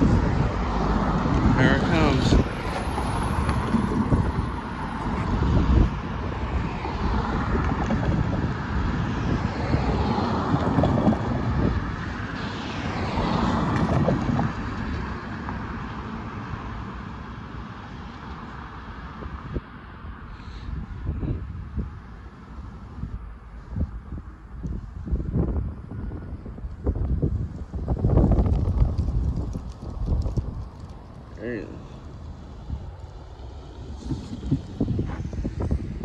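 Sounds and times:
cars driving past: 0.0s - 36.0s
wind rumbling on microphone: 0.0s - 36.0s.

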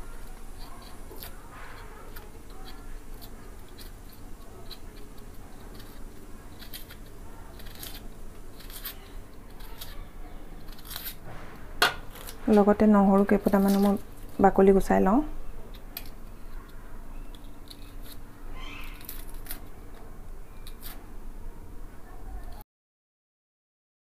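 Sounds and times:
onion skin crackling and tearing: 0.0s - 14.6s, 15.5s - 21.1s.

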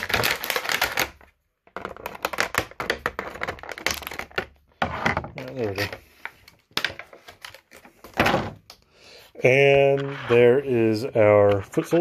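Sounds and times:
plastic packaging crackling: 0.0s - 4.4s.

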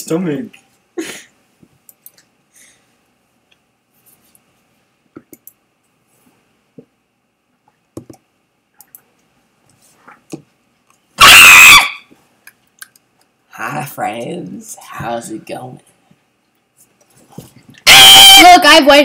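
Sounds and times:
computer mouse clicks: 5.2s - 5.6s, 8.8s - 9.1s.

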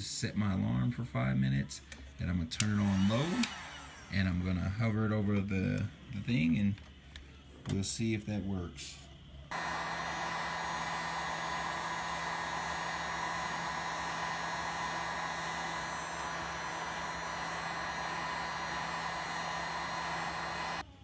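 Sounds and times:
heat gun blowing air: 2.6s - 4.2s, 9.5s - 20.8s.

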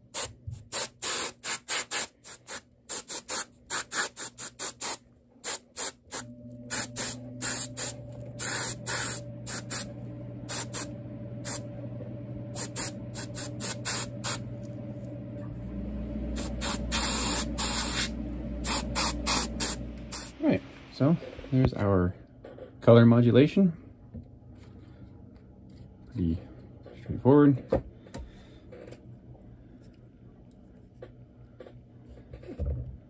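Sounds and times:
airbrush spraying hisses: 0.1s - 9.9s, 10.5s - 11.6s, 12.6s - 14.4s, 16.4s - 20.4s
steady low hum: 5.1s - 33.0s.

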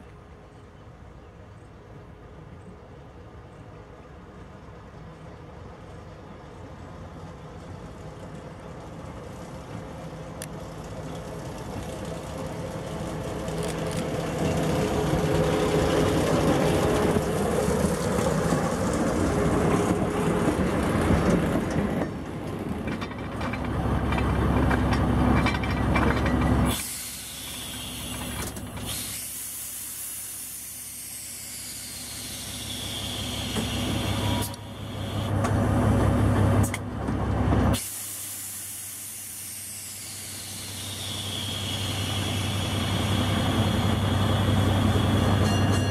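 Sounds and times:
diesel locomotive engine: 0.0s - 45.9s
train passing rumble: 0.0s - 45.9s
steady air hiss: 26.7s - 35.4s, 37.8s - 45.2s.

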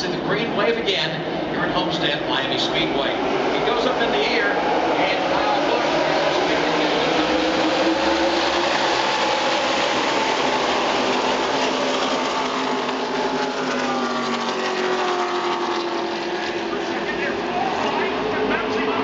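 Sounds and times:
race truck engines at full throttle: 0.0s - 19.0s.

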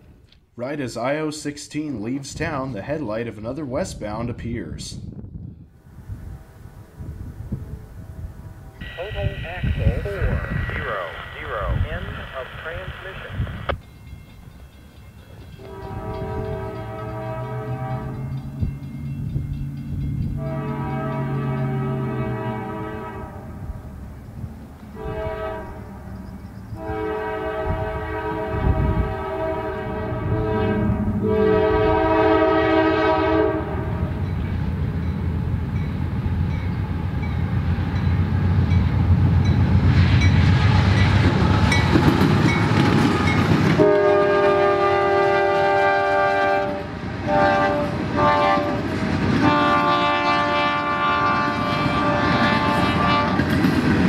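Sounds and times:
train rushing on rails: 5.0s - 54.0s
locomotive air horn blasts: 15.6s - 18.3s, 20.4s - 23.6s, 25.0s - 25.9s, 26.8s - 34.1s, 43.8s - 48.8s, 49.4s - 53.4s.

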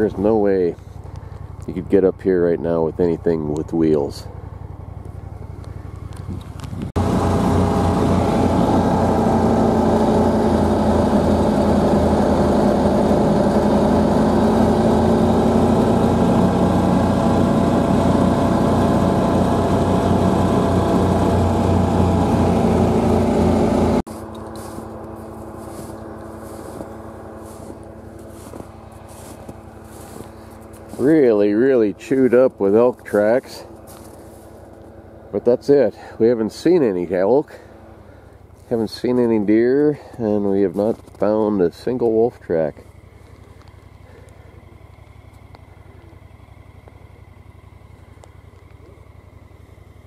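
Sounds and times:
tracked vehicle engine running: 0.0s - 50.0s
steady hum: 4.3s - 38.9s.

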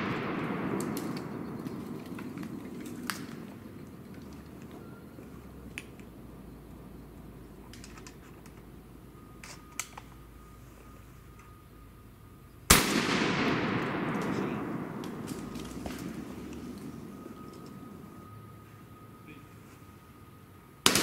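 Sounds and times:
low steady background noise: 0.0s - 21.0s
shotgun blast echoing: 12.7s - 16.3s.

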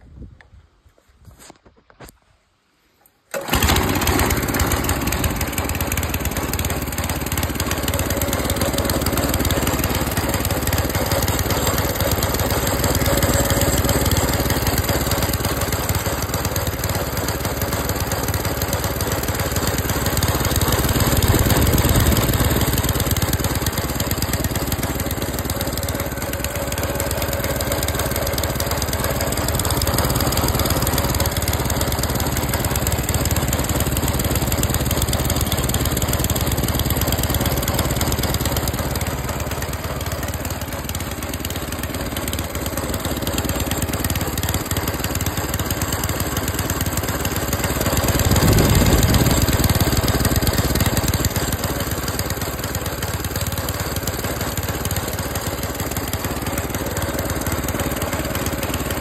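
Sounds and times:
lawn mower engine idling: 3.3s - 59.0s.

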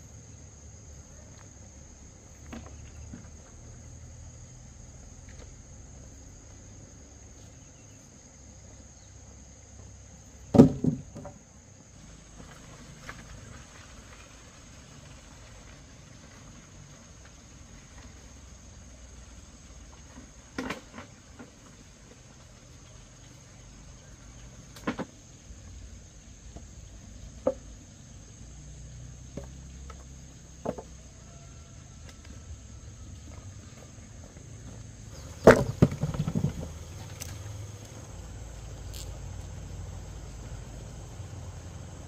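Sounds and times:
high insect drone: 0.0s - 42.0s
wooden poles knocking: 10.5s - 11.4s, 29.3s - 31.0s, 34.7s - 37.2s.

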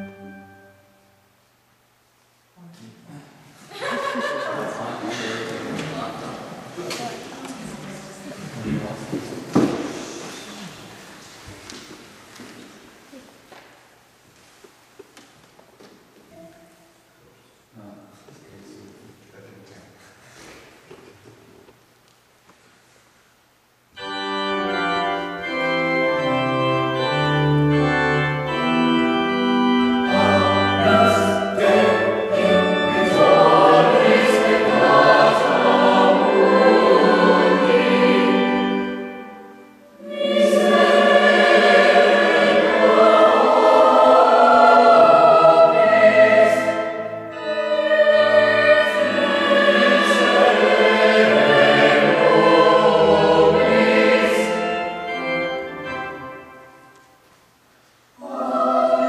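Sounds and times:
mixed choir singing: 29.3s - 56.6s, 58.2s - 59.0s.

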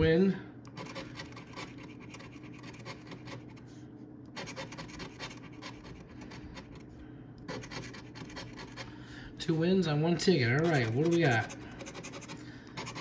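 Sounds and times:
coin scratching lottery ticket: 0.7s - 3.6s, 4.4s - 6.8s, 7.5s - 8.9s, 10.6s - 13.0s.

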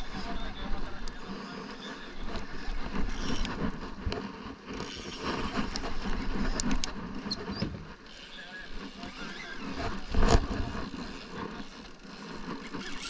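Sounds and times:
gusty wind: 0.0s - 13.0s
fishing reel cranking: 1.0s - 13.0s.

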